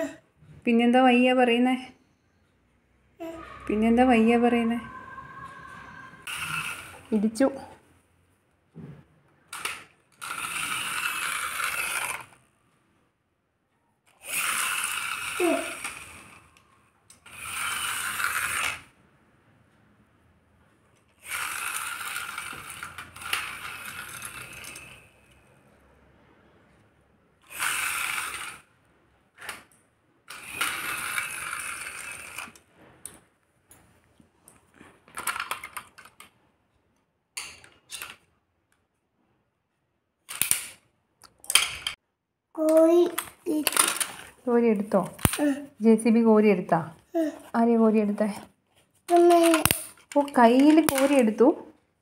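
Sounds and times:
toy wheels and gears whirring: 3.2s - 7.4s, 9.5s - 12.4s, 14.1s - 19.0s, 21.0s - 25.5s, 27.4s - 28.7s, 30.3s - 32.7s, 35.2s - 36.2s, 37.6s - 38.3s, 40.3s - 40.8s, 42.6s - 46.2s, 49.0s - 51.5s
toy clicking and rattling: 9.5s - 12.4s, 14.1s - 18.9s, 21.0s - 25.5s, 27.4s - 28.7s, 30.3s - 32.7s, 35.1s - 36.3s, 37.4s - 38.3s, 42.6s - 44.3s, 44.9s - 45.7s, 49.0s - 51.4s.

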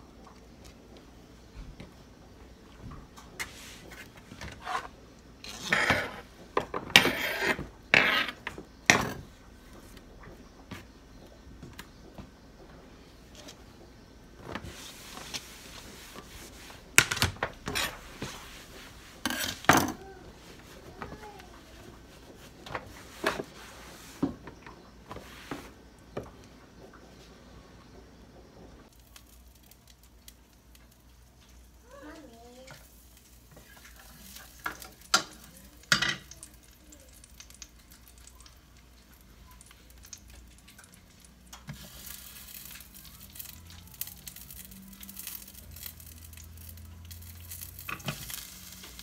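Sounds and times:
cloth scrubbing a countertop: 14.6s - 16.9s, 17.8s - 19.2s.

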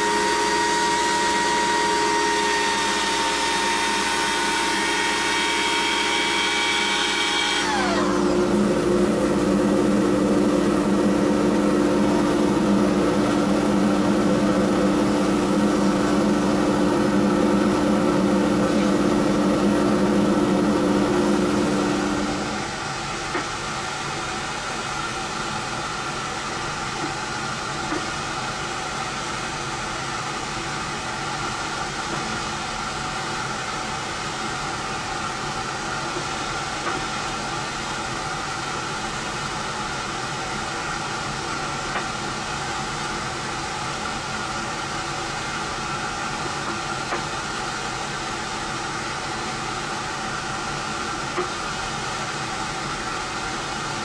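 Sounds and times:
machine motor whining: 0.0s - 22.8s.

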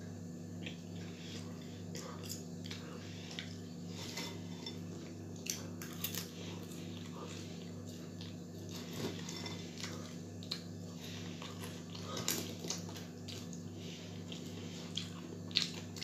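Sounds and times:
steady low hum: 0.0s - 16.0s
person chewing: 0.5s - 16.0s.

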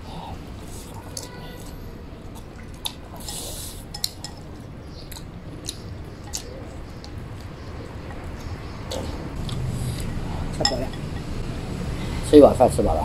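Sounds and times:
wet chewing: 0.6s - 11.3s
chopsticks clicking against bowls: 2.4s - 7.5s.

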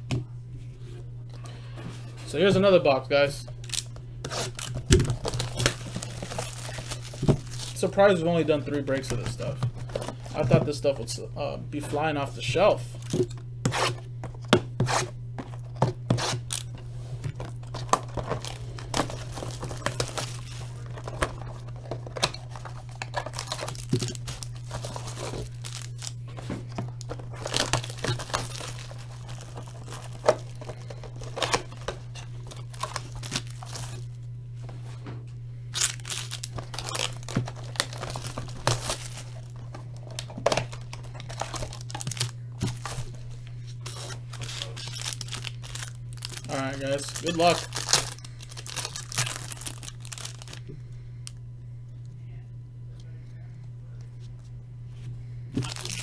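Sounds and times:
steady low hum: 0.0s - 56.0s
plastic shrink wrap tearing: 3.6s - 8.2s, 16.1s - 16.8s, 17.4s - 34.1s, 35.7s - 50.7s, 55.6s - 56.0s.

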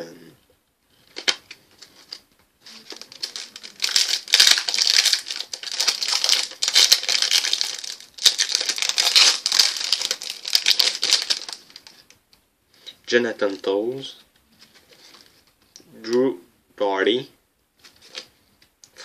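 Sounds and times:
wrapper crinkling: 1.0s - 12.2s, 17.8s - 18.3s.

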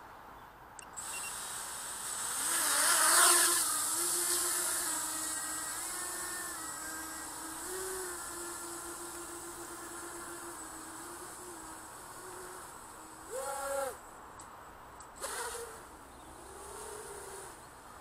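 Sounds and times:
drone motors whining: 1.0s - 14.0s.

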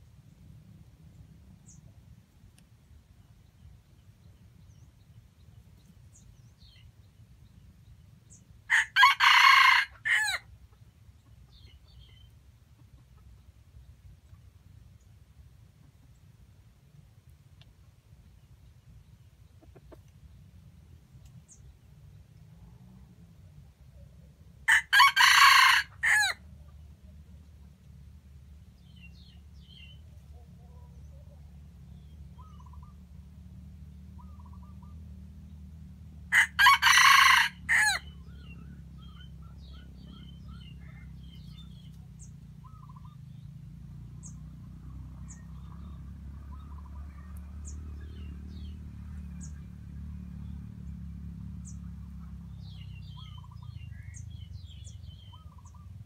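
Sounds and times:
small birds chirping: 0.2s - 8.6s, 10.6s - 16.4s, 17.2s - 22.5s, 28.5s - 33.2s, 34.0s - 35.8s, 38.0s - 56.0s
rooster crowing: 8.7s - 10.4s, 24.7s - 26.4s, 36.3s - 38.2s.

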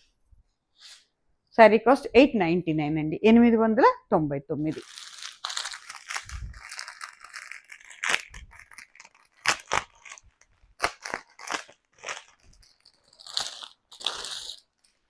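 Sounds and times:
plastic packet crinkling: 4.7s - 15.0s.

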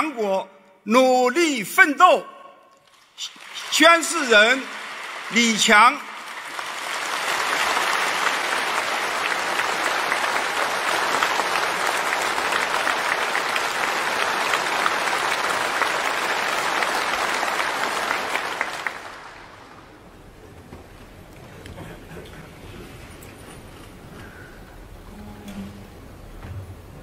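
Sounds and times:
audience applauding: 2.8s - 20.0s.

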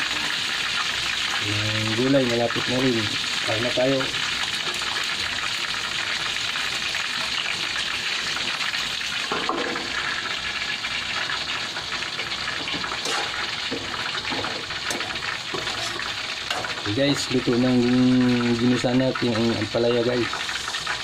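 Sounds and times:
meat sizzling in oil: 0.0s - 21.0s
metal pot lid clatter: 9.2s - 10.1s, 12.2s - 16.8s.

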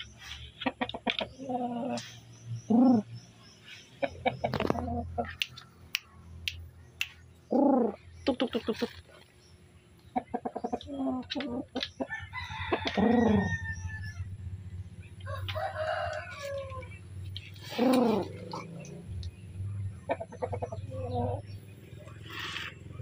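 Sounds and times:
rooster crowing: 12.1s - 14.3s, 15.2s - 16.9s.

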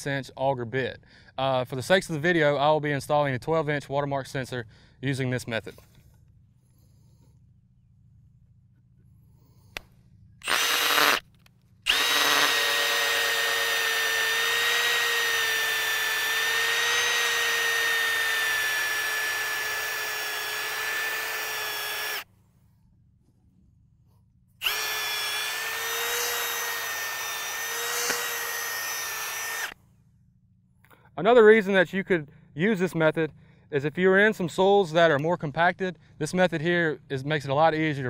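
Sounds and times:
power drill boring into soil: 10.4s - 11.3s, 11.9s - 22.3s, 24.6s - 29.8s.

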